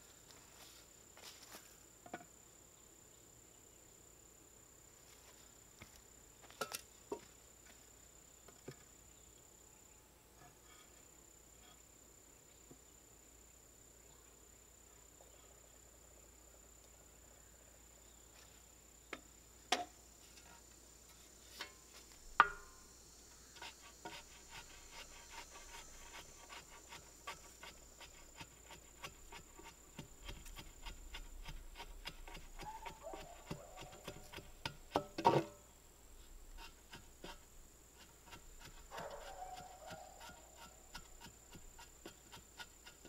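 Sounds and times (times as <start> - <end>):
high insect drone: 19.9 - 32.6
shovel scraping soil: 23.4 - 35.6, 36.2 - 43.0.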